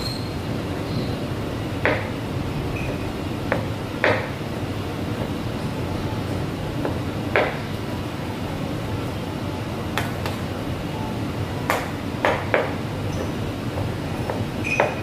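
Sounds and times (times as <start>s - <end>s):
utensils and dishes clinking: 14.3s - 15.0s.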